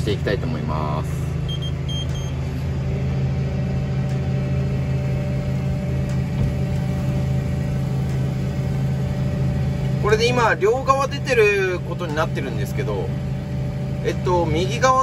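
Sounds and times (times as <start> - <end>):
diesel tractor engine running: 0.0 - 15.0
short electronic beeps: 1.5 - 2.4.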